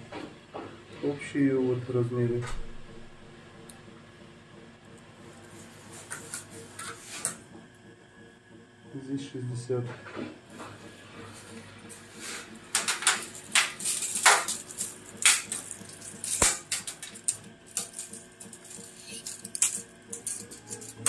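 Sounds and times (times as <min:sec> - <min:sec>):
tape measure clicks and rattles: 0:12.8 - 0:21.0.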